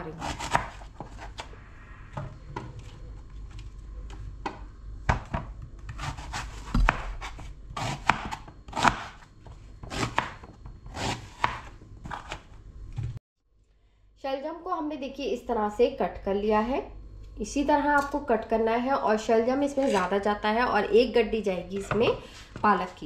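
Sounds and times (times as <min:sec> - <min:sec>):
knife chopping on plastic board: 0:00.2 - 0:01.2, 0:04.4 - 0:09.2, 0:09.8 - 0:12.4.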